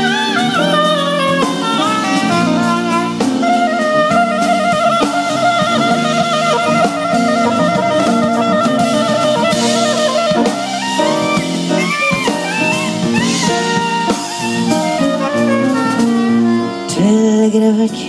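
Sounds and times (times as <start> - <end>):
drum kit: 0.0 - 18.0
saxophone playing: 0.0 - 18.0.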